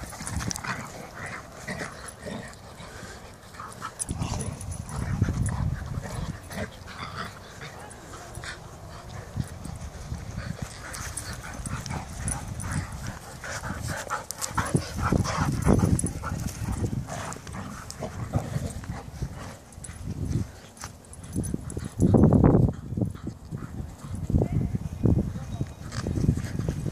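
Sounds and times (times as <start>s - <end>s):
dogs play noises: 0.0s - 24.4s, 25.7s - 26.9s.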